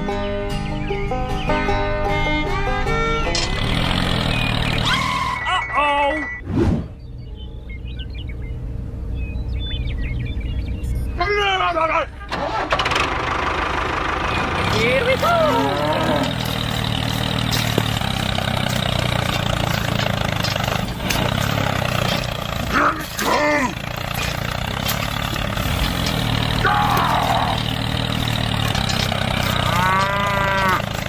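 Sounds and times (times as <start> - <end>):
tractor engine drone: 0.0 - 31.0
cow mooing: 14.9 - 16.6, 26.5 - 31.0.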